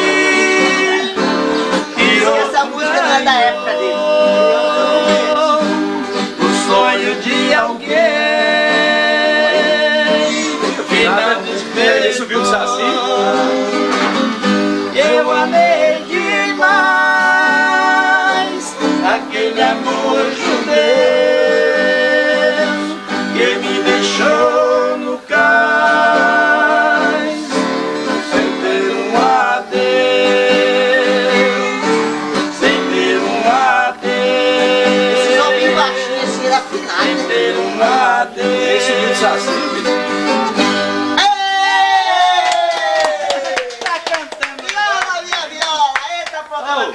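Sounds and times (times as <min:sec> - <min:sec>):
acoustic guitars strummed and plucked: 0:00.0 - 0:43.6
man singing long notes: 0:02.0 - 0:14.2, 0:14.9 - 0:27.6, 0:28.3 - 0:40.1.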